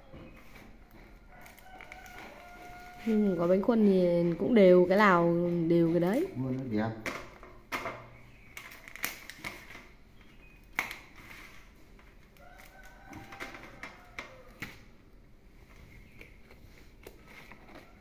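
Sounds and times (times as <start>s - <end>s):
leaves crinkling: 1.4s - 3.7s.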